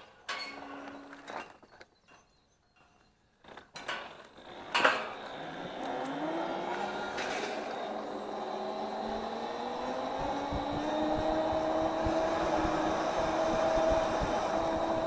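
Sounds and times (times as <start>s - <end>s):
electric scooter motor whine: 4.2s - 15.0s.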